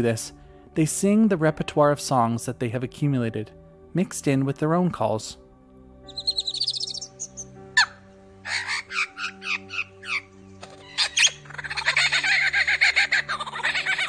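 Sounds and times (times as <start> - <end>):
lyrebird singing: 6.1 - 14.0.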